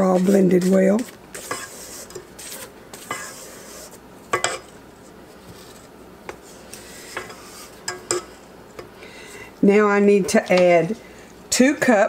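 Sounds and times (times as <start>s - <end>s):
spatula scraping metal bowl: 0.0s - 4.8s, 5.4s - 8.5s.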